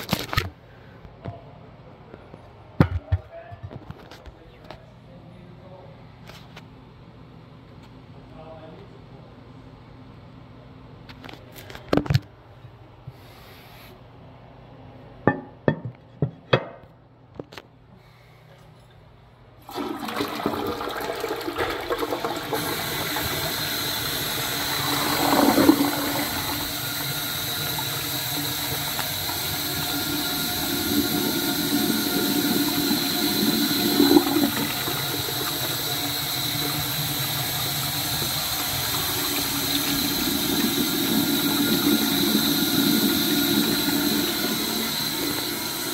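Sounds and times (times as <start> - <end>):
water rushing into toilet bowl: 19.6 - 45.9
toilet flush clicks: 19.7 - 45.9.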